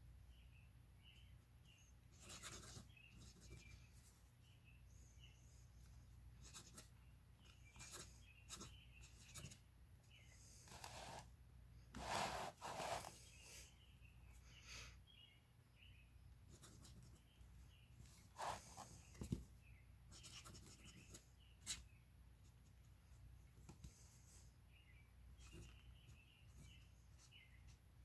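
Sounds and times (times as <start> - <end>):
fountain pen scratching on paper: 2.1 - 3.7, 10.6 - 11.3, 11.9 - 13.2, 18.4 - 18.8.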